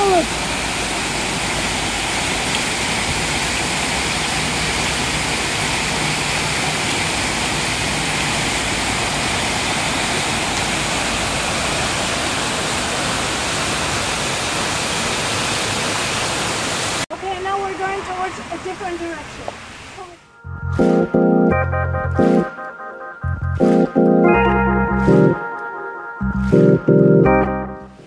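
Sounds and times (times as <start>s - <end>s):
waterfall cascading over rocks: 0.0s - 20.2s.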